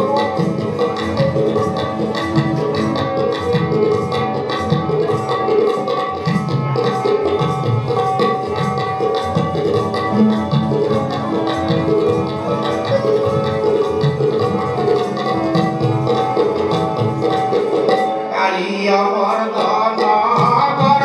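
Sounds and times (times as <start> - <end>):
tabla playing quick rhythm: 0.0 - 21.0
melodic instrument held tones: 9.8 - 17.0.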